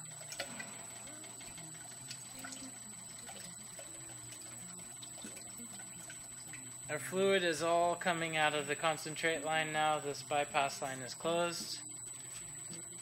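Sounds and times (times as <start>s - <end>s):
liquid running from tubing: 0.0s - 7.8s.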